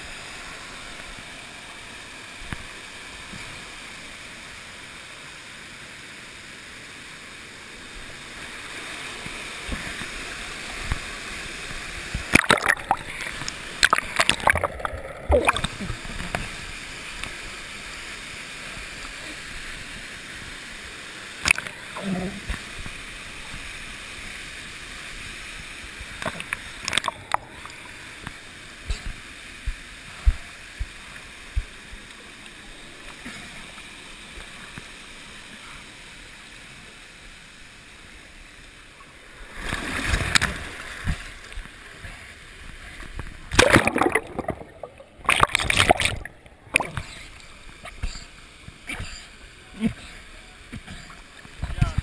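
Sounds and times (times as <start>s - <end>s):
water rushing down a slide: 8.5s - 17.5s
splashing into a pool: 12.2s - 16.6s, 43.5s - 48.2s.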